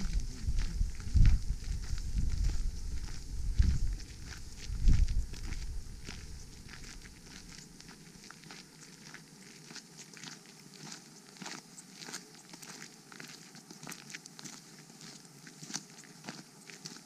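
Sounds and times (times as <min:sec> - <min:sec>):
low rumble: 0:00.0 - 0:07.4
footsteps on gravel: 0:00.0 - 0:17.0.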